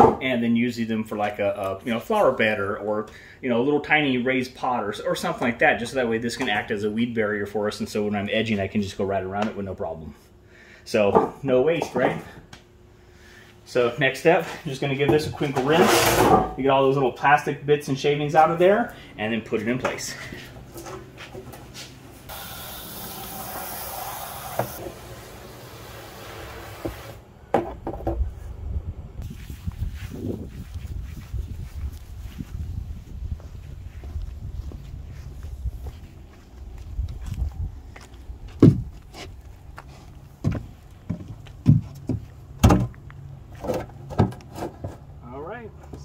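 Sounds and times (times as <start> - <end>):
hose water spraying: 22.3 - 27.2.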